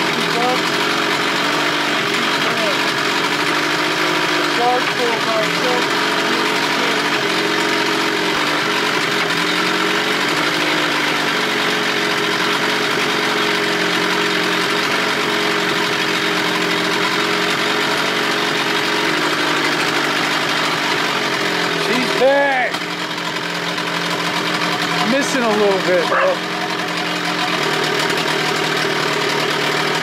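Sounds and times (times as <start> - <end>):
outboard motor idling: 0.0 - 30.0.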